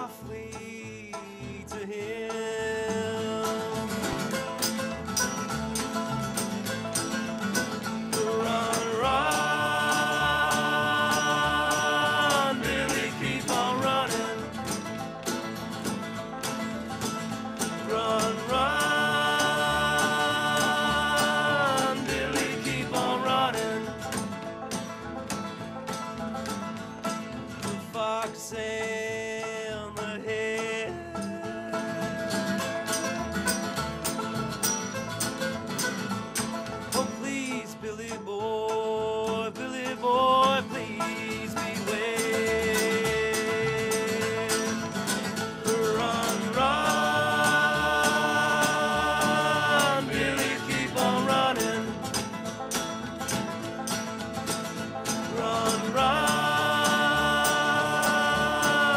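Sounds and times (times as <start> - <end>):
two men singing together: 0.0 - 4.4, 8.0 - 14.9, 17.6 - 24.3, 27.6 - 34.2, 36.9 - 52.3, 55.1 - 58.9
banjo: 0.0 - 58.9
strummed acoustic guitar: 0.0 - 58.9
upright bass: 0.0 - 58.9
percussive beat: 3.9 - 37.2, 41.5 - 58.9.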